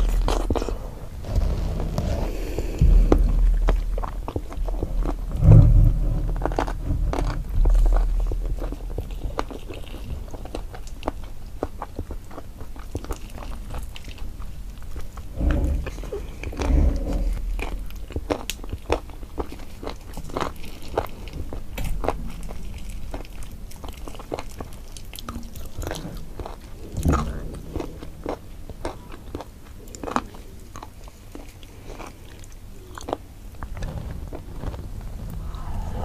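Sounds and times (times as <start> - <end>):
close chewing and biting: 0.0 - 35.6
low thumps: 1.2 - 9.6, 34.9 - 36.0.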